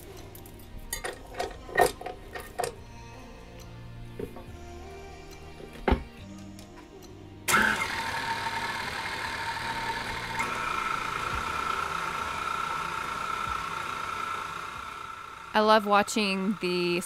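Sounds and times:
stand mixer running: 7.5s - 17.0s.

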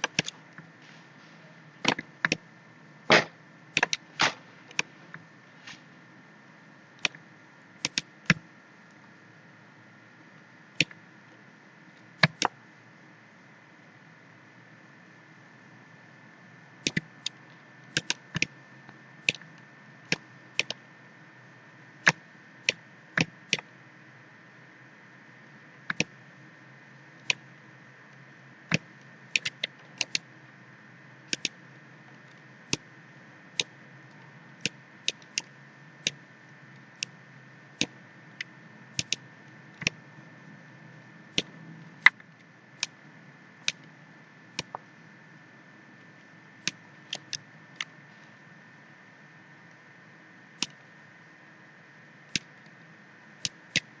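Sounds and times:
computer mouse clicking: 0.0s - 0.6s, 1.8s - 2.4s, 3.1s - 5.2s, 7.0s - 7.2s, 7.8s - 8.4s, 10.8s - 11.0s, 12.2s - 12.6s, 16.8s - 18.6s, 19.2s - 20.8s, 22.0s - 23.7s, 25.9s - 26.2s, 27.2s - 27.4s, 28.7s - 30.3s, 31.3s - 31.6s, 32.2s - 32.8s, 33.5s - 37.2s, 37.8s - 39.2s, 43.6s - 43.9s, 44.5s - 44.8s, 46.6s - 47.9s, 52.3s - 52.7s
faint steady hiss: 0.0s - 54.0s.

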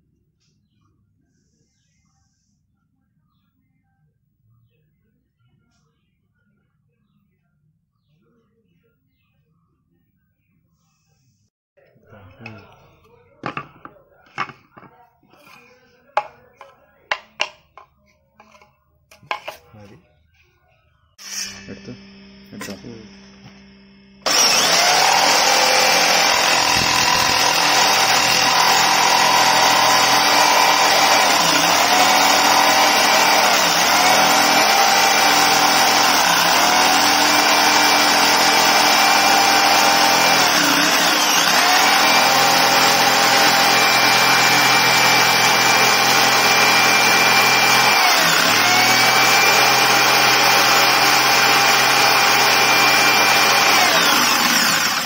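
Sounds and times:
electric jigsaw sawing wood: 17.1s - 17.6s, 21.2s - 23.6s, 24.2s - 55.0s.

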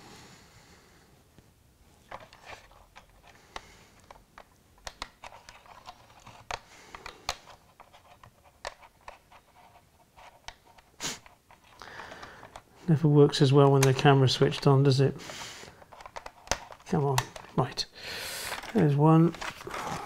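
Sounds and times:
small clicks and taps on plastic: 2.9s - 9.2s, 15.8s - 17.8s.

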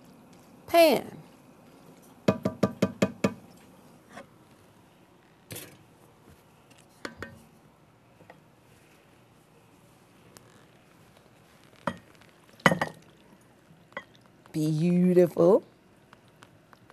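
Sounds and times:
wooden spoon knocking on pot rim: 2.2s - 3.4s.

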